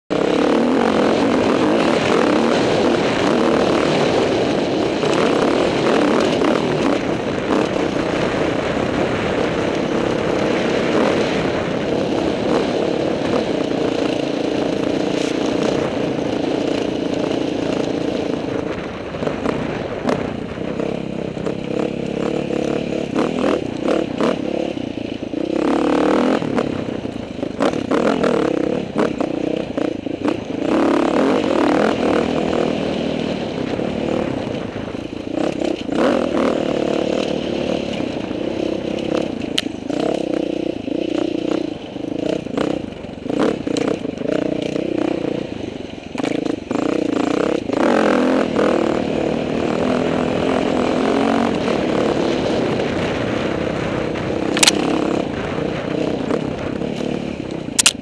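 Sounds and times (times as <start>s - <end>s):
dirt bike engine running: 0.1s - 58.0s
bike rattles and knocks: 54.5s - 55.0s.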